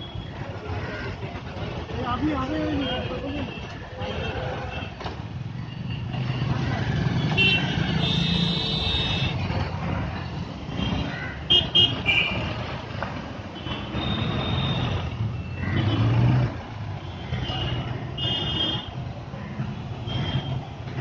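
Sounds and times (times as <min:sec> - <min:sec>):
traffic engines and passing vehicles: 0:00.0 - 0:21.0
car horns honking: 0:05.8 - 0:09.5, 0:10.8 - 0:12.7, 0:13.5 - 0:19.0, 0:19.8 - 0:20.8.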